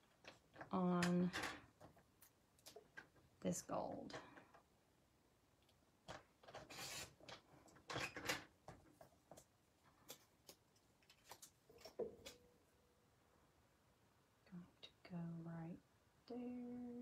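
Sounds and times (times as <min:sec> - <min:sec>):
paper trimmer scraping along rail: 0:06.6 - 0:07.2
paper rustling and clicks: 0:08.8 - 0:12.4.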